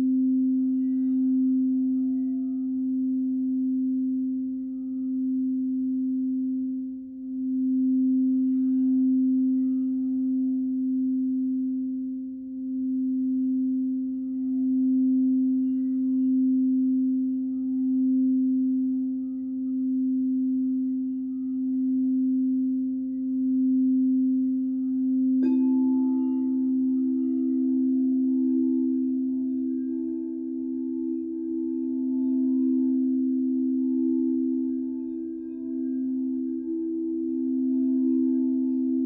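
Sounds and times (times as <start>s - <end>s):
singing bowl low tone: 0.0s - 39.0s.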